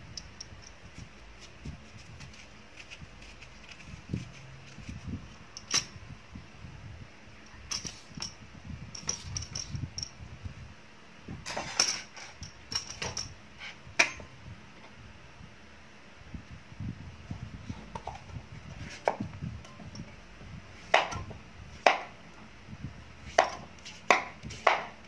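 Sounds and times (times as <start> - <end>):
rustling of peel: 0.6 - 5.4.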